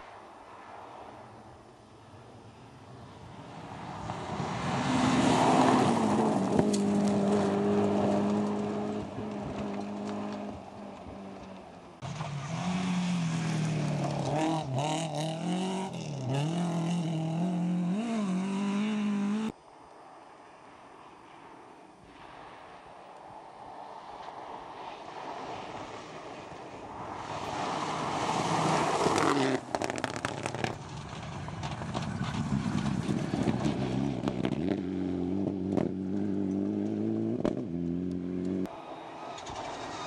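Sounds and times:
rally car passing at full throttle: 0.0 - 19.5, 23.5 - 40.0
car engine revving through gear changes: 12.4 - 19.5.

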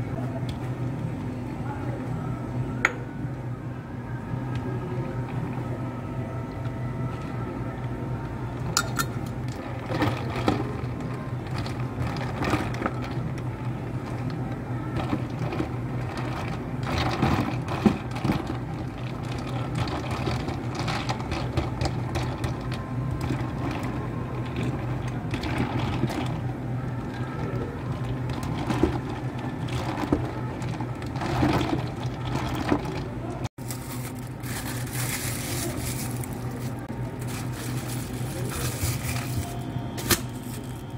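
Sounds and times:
cafe equipment hum: 0.0 - 40.9
plastic cups and ice clinking: 8.7 - 40.9
plastic lids rustling: 33.6 - 40.9.

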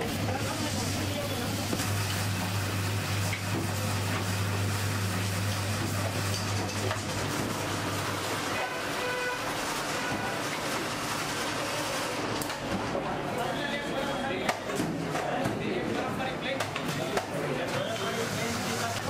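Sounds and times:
ice being shaved: 0.0 - 12.6, 17.8 - 19.0
ice-shaving machine motor hum: 0.0 - 12.8, 17.6 - 19.0.

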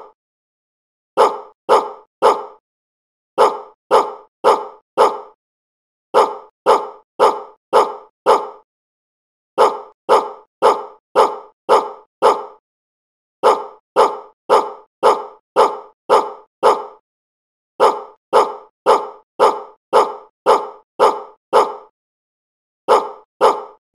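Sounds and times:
dog barking: 1.2 - 2.6, 3.4 - 5.4, 6.1 - 8.7, 9.6 - 12.6, 13.4 - 17.0, 17.8 - 21.9, 22.9 - 23.8.

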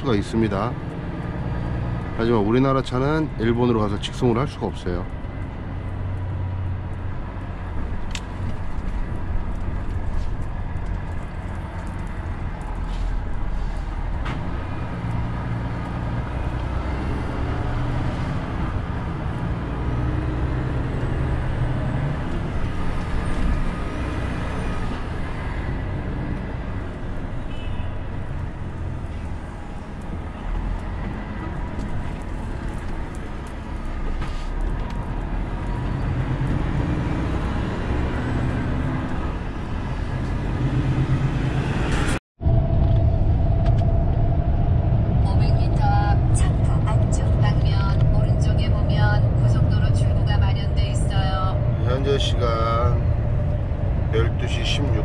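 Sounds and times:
road noise: 0.0 - 55.0
truck diesel engine drone: 35.2 - 55.0.

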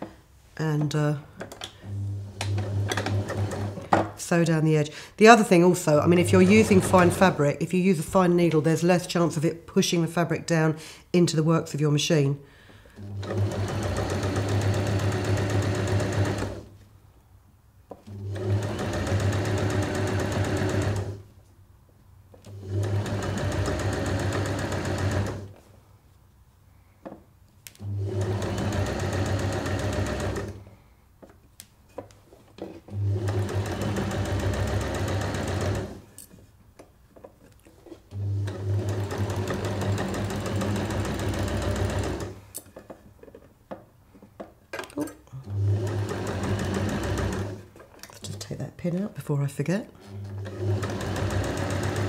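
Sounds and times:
sewing machine stitching: 1.6 - 3.9, 6.0 - 7.4, 13.0 - 16.7, 18.1 - 21.2, 22.5 - 25.5, 27.8 - 30.7, 32.6 - 36.1, 37.8 - 42.5, 45.4 - 47.8, 50.0 - 52.0.

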